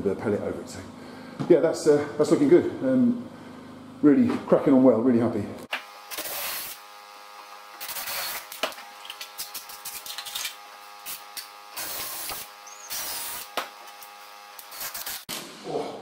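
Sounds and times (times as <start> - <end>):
cordless drill bursts: 7.8 - 8.6, 11.0 - 13.6.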